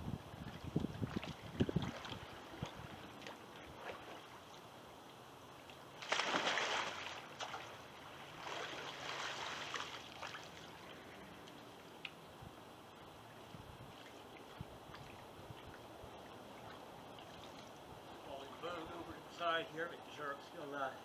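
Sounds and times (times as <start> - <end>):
water splashing: 0.4 - 4.8, 5.7 - 12.1, 13.9 - 18.8
wash of water from paddle: 6.0 - 11.1.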